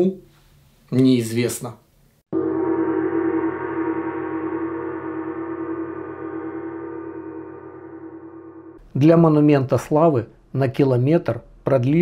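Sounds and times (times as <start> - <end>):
gong ringing: 2.3 - 8.8.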